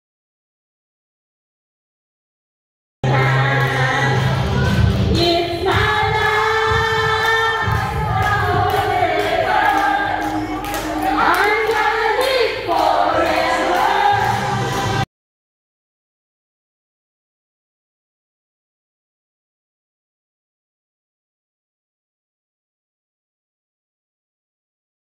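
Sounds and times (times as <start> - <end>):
group singing into microphones: 3.0 - 15.0.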